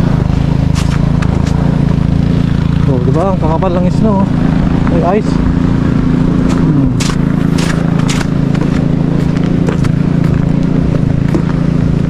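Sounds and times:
footsteps crunching on icy slush: 0.7 - 1.6, 6.4 - 10.5.

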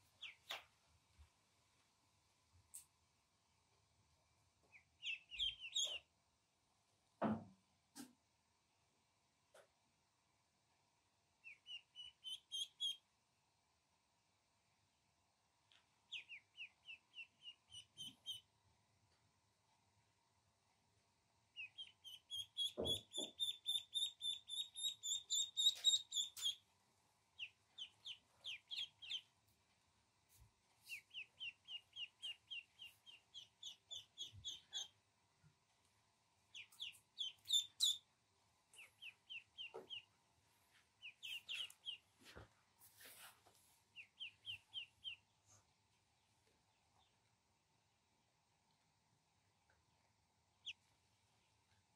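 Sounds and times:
ducklings peeping: 0.0 - 0.6, 4.7 - 6.1, 11.4 - 13.1, 16.0 - 18.5, 21.5 - 26.7, 27.3 - 29.4, 30.8 - 35.0, 36.4 - 40.2, 40.9 - 42.2, 43.9 - 47.3, 50.5 - 50.9.

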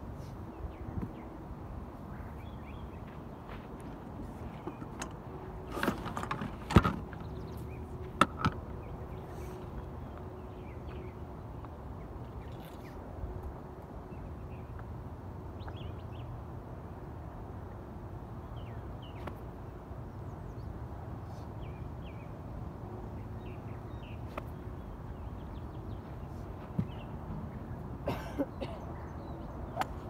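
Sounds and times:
birds chirping: 0.2 - 13.0, 23.1 - 30.0.

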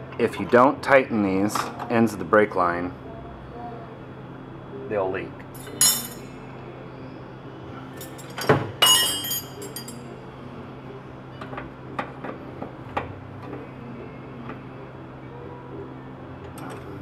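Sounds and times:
wrench clanking against tools: 5.6 - 6.2, 8.0 - 10.0.

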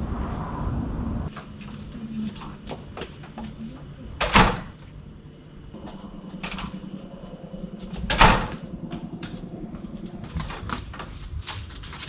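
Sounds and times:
door banging: 7.9 - 8.9.

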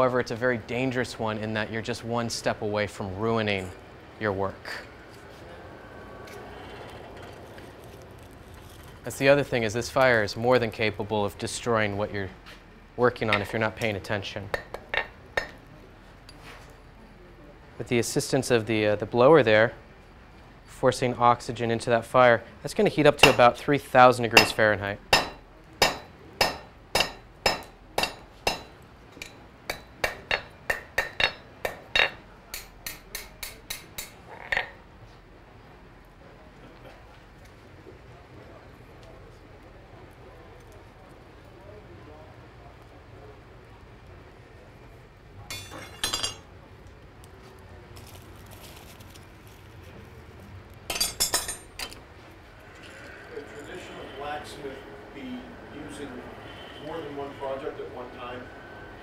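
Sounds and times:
hammer striking iron on anvil: 14.5 - 15.6, 23.2 - 23.6, 24.4 - 34.8
metal tools clinking: 45.5 - 46.5, 50.9 - 52.0.

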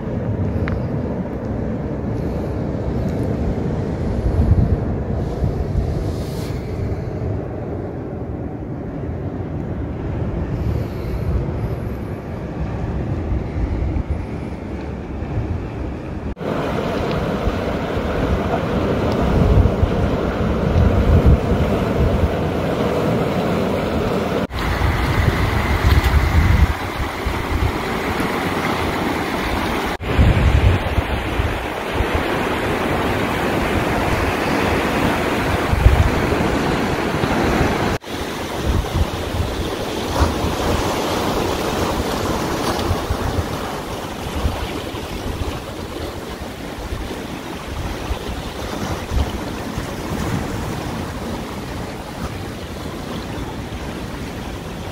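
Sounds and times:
wind buffeting microphone: 0.0 - 54.9
sea water washing around rocks: 16.3 - 54.9.

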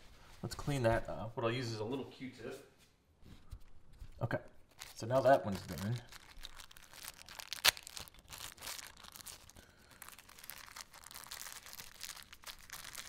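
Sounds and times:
plastic bag crinkling: 4.5 - 13.0.

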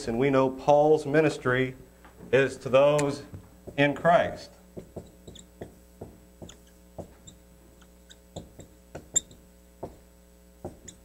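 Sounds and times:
marker squeaking on whiteboard: 4.8 - 5.8, 6.4 - 10.0, 10.7 - 11.0.

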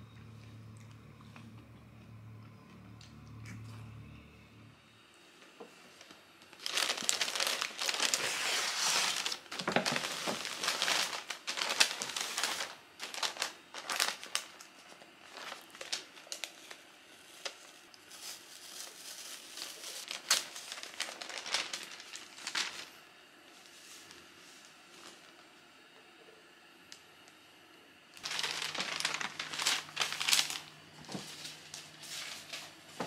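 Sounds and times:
paper wrapping crinkling: 6.0 - 23.0, 28.2 - 33.0.

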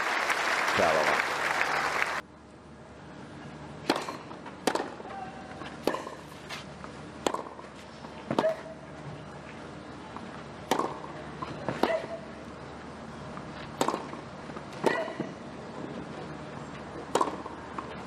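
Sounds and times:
crowd applause: 0.0 - 2.2
tennis racket hitting ball: 3.8 - 5.0, 5.7 - 6.6, 7.2 - 7.7, 10.6 - 11.1, 13.8 - 15.3, 17.0 - 17.9.

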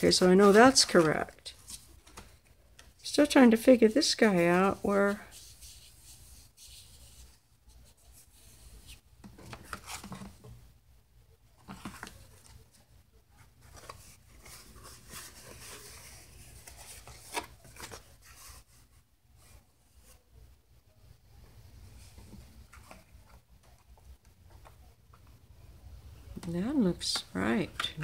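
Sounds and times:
stiff paper rustling: 0.0 - 2.9, 13.4 - 20.1.

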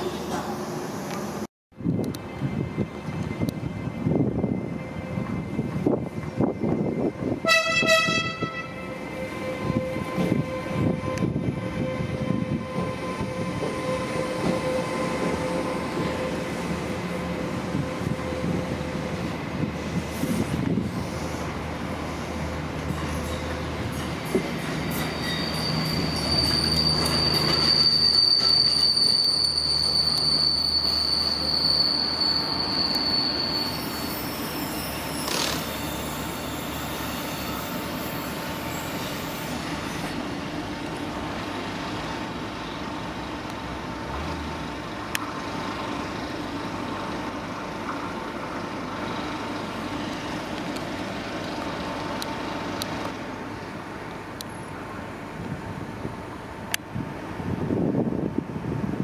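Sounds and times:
rumble of rail traffic: 0.0 - 59.0
train wheels squealing: 8.6 - 40.2.

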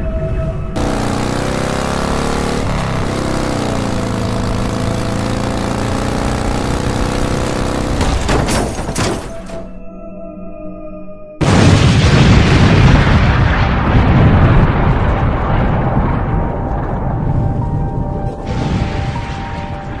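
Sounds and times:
motorcycle engine running: 0.8 - 8.5.

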